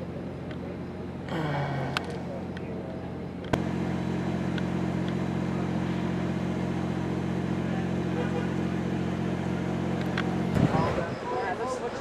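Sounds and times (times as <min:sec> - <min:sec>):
diesel locomotive idling: 0:00.0 - 0:12.0.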